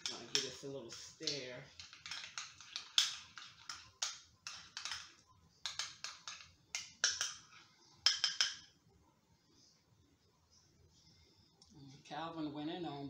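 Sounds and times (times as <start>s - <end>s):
metal utensil scraping glass bowl: 0.0s - 8.5s.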